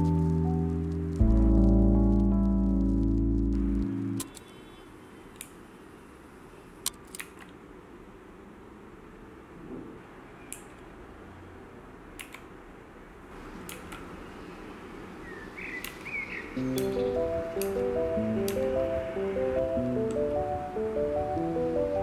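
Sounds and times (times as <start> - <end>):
mechanical keys clicking: 15.8 - 20.4.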